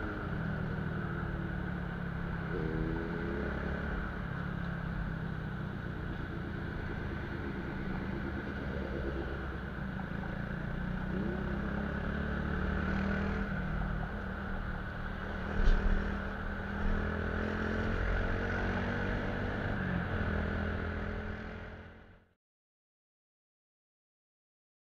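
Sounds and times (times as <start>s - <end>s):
motorcycle engine running: 0.0s - 18.5s
wind and road noise: 0.0s - 22.4s.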